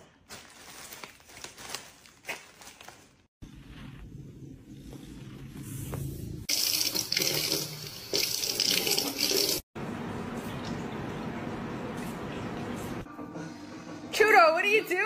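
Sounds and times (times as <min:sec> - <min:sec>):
faucet running into a steel sink: 0:06.5 - 0:09.6.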